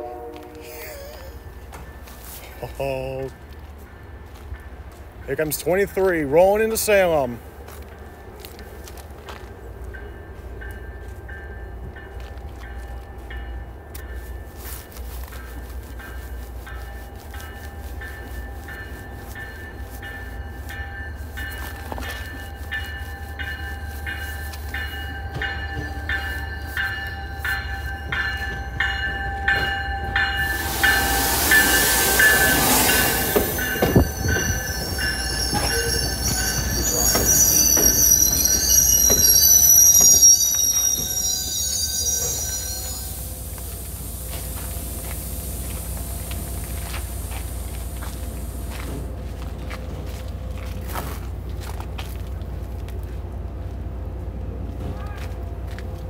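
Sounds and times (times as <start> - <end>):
train passing: 0.0 - 56.0
high-pitched wheel squeal: 30.8 - 43.4.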